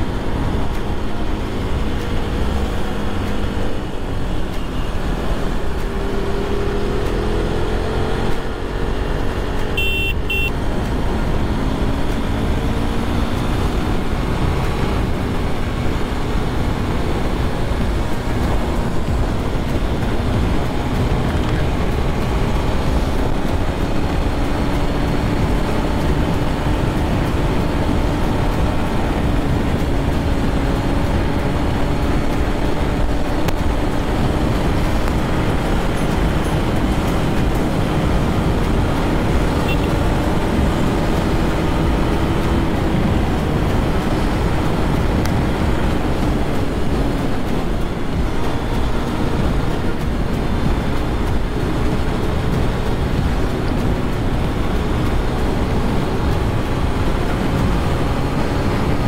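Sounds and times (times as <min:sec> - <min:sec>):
motorcycle engine running: 0:00.0 - 0:59.0
wind rushing over camera: 0:00.0 - 0:59.0
short high beep: 0:09.8 - 0:10.5.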